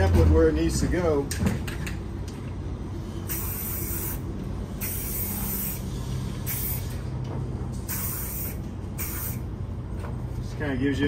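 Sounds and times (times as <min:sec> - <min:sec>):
steady low hum: 0:00.0 - 0:11.0
aerosol spray hissing: 0:03.3 - 0:04.2, 0:04.8 - 0:05.9, 0:07.9 - 0:09.4.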